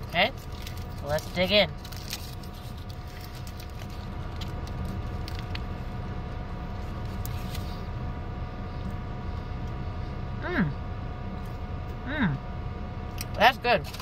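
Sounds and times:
paper wrapper crinkling: 0.0 - 5.8
air conditioning hum: 0.0 - 14.0
car engine idling: 0.0 - 14.0.

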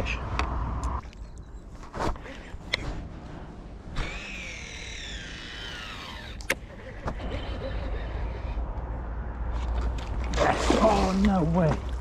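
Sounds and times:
fishing reel spool whine: 4.0 - 6.5.

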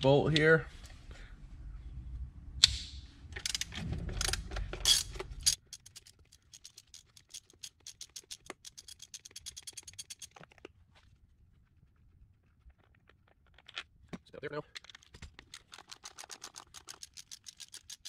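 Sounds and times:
ratchet pawl clicking: 4.9 - 10.3.

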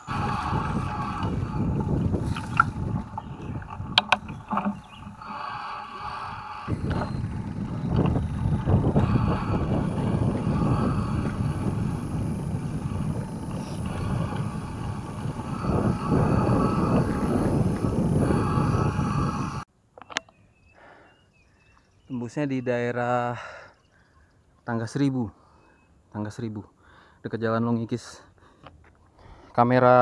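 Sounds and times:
bike tyres rumbling over asphalt: 0.0 - 19.6
wind buffeting microphone: 0.0 - 19.7.

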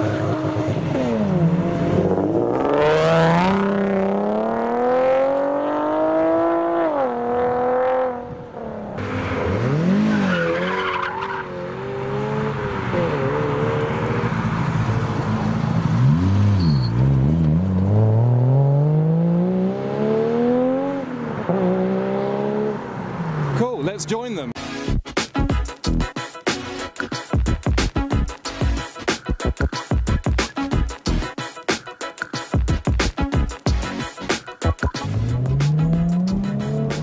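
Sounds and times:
sports car engines revving: 0.0 - 24.1, 35.0 - 37.0.

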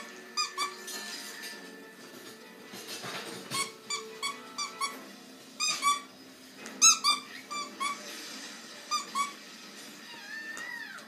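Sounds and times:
squeaky dog toy squeaking: 0.0 - 1.1, 3.5 - 6.2, 6.8 - 8.1, 8.9 - 9.4.

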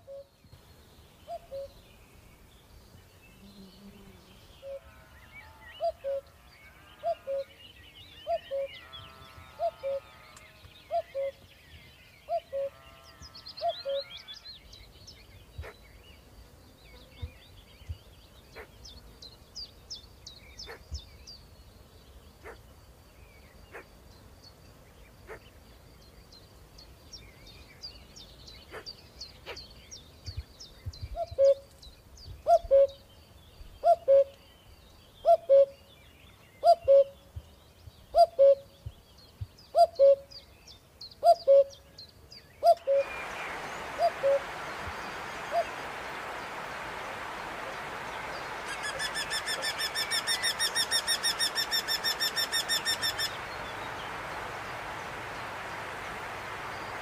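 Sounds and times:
small birds chirping: 0.0 - 57.0.

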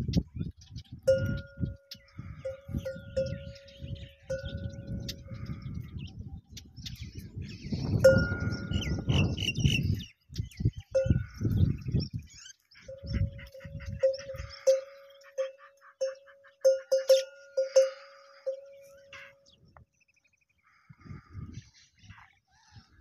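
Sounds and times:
small birds chirping: 0.0 - 23.0
livestock bell clanking: 1.1 - 5.8, 8.0 - 9.4, 11.0 - 11.8, 12.9 - 19.6.

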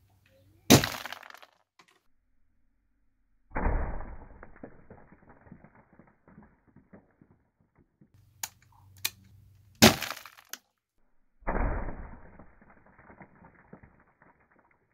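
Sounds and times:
glass pane cracking and ringing: 9.8 - 10.6.

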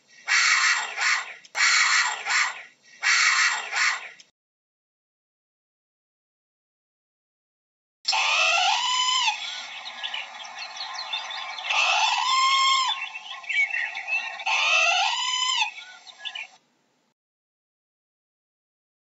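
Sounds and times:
parrots squawking: 0.2 - 4.2, 8.1 - 16.6
parrot chirps and squeaks: 8.1 - 16.6.

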